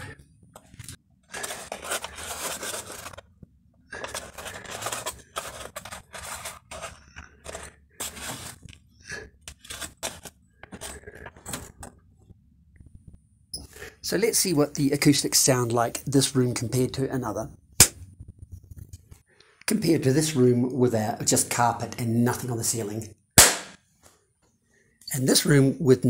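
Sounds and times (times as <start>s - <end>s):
cardboard scraping and rustling: 0.6s - 3.3s, 3.9s - 8.7s, 9.5s - 11.8s.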